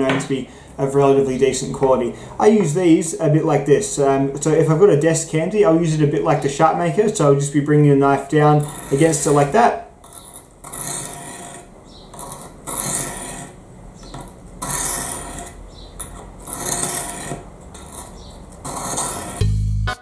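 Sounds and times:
knife rasping on whetstone: 8.6 - 19.5
music: 19.4 - 20.0.

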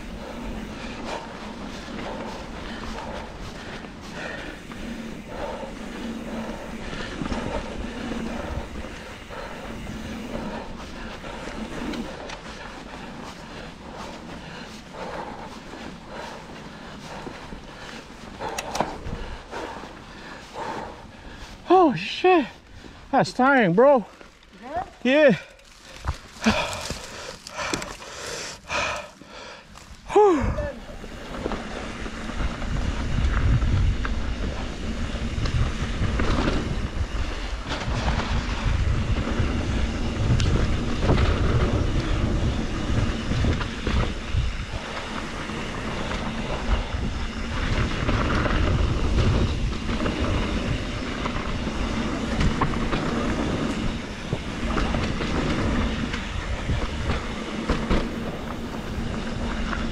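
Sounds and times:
bike tyres rumbling on dirt trail: 0.0 - 59.9
wind noise on microphone: 30.0 - 59.9.

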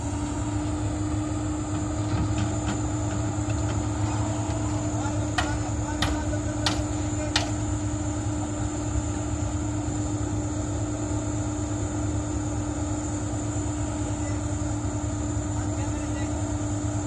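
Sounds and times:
excavator engine drone: 0.0 - 17.0.

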